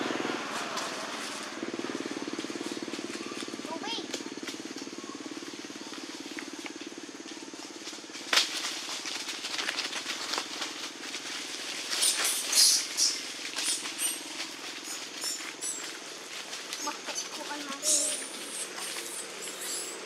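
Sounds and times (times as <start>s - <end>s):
low motor hum: 0.0s - 12.0s
rustles and clicks: 0.4s - 20.0s
sharp crack: 8.2s - 9.8s.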